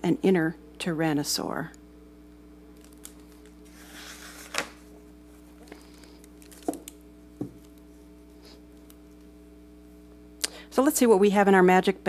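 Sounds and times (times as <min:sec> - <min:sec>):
faint electrical hum: 0:00.0 - 0:12.0
paper rustling: 0:02.8 - 0:06.9
book cover knocking: 0:07.4 - 0:07.6.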